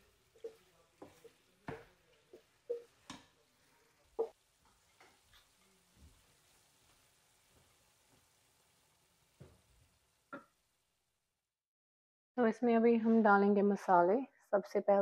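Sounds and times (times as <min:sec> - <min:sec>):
stirring puree: 0:00.0 - 0:07.0
spatula knocking on a pot: 0:00.4 - 0:03.4.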